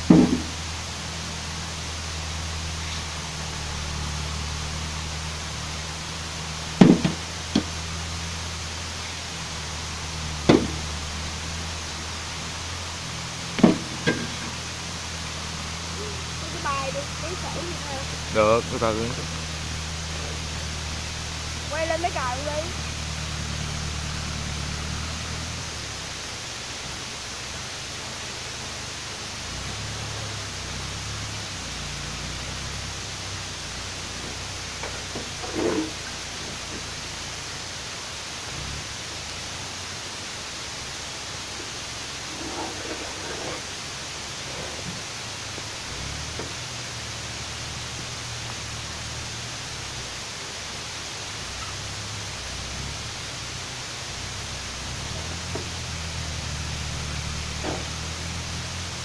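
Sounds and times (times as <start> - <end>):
steady hiss: 0.0 - 59.0
tractor engine droning: 0.0 - 59.0
sharp knocks near microphone: 0.1 - 0.5, 6.8 - 7.7, 10.5 - 10.9.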